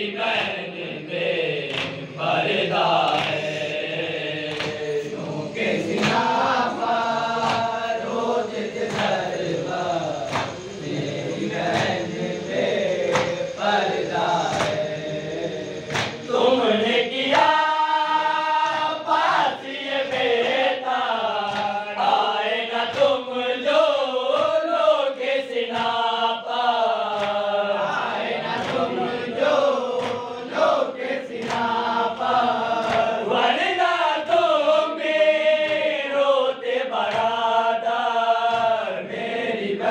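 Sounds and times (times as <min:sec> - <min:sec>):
men chanting in unison: 0:00.0 - 0:39.9
hands slapping on chests: 0:01.6 - 0:06.8, 0:07.4 - 0:09.5, 0:10.2 - 0:11.0, 0:11.6 - 0:12.0, 0:13.0 - 0:13.5, 0:14.4 - 0:14.9, 0:15.8 - 0:16.4, 0:18.6 - 0:19.0, 0:21.4 - 0:21.8, 0:27.1 - 0:27.5, 0:28.6 - 0:29.0, 0:29.9 - 0:30.3, 0:31.3 - 0:33.2, 0:37.0 - 0:37.5, 0:38.4 - 0:38.9.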